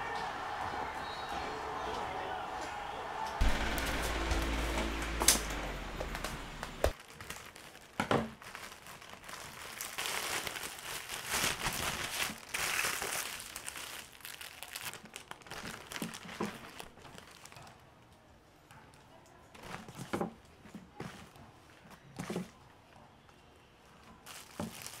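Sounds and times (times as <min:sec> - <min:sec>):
sharp knocks: 0:03.4 - 0:06.9
plastic packaging crinkling: 0:06.9 - 0:17.8, 0:24.2 - 0:25.0.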